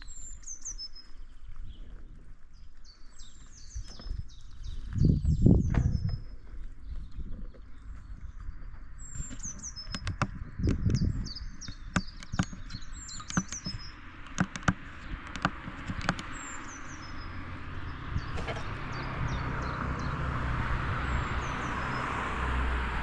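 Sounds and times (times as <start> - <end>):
low rumble: 0.0 - 11.9
songbird chirping: 0.0 - 22.9
sharp clicks and taps: 9.4 - 16.3.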